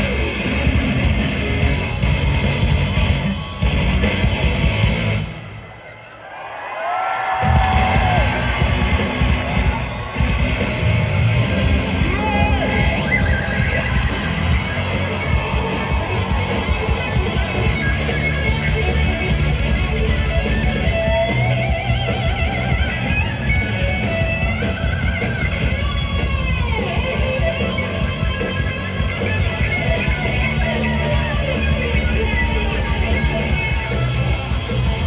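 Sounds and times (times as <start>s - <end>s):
electric guitar lead lines: 0.0s - 5.8s, 7.4s - 35.0s
live rock band: 0.0s - 5.8s, 7.3s - 35.0s.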